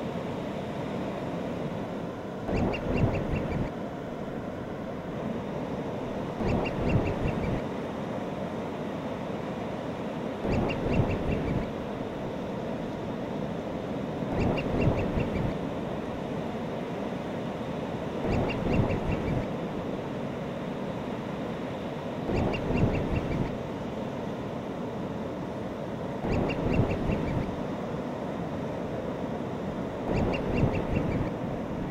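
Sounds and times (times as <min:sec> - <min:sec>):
gull calls: 0:02.5 - 0:03.7, 0:06.4 - 0:07.6, 0:10.5 - 0:11.7, 0:14.3 - 0:15.5, 0:30.1 - 0:31.3.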